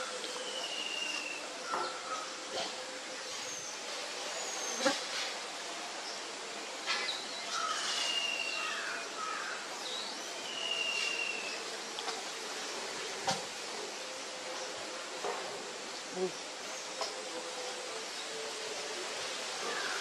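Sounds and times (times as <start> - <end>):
insect hiss: 0.0 - 20.0
whistled bird calls: 10.5 - 11.5.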